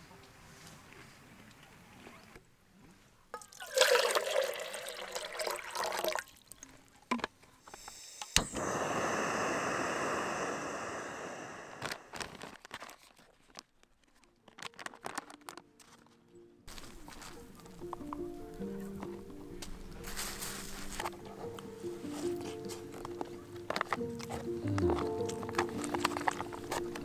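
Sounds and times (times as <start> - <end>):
water pouring: 3.4 - 6.8
gas stove burner hissing: 7.7 - 12.4
foil pouch crinkling: 11.8 - 18.0, 22.2 - 27.0.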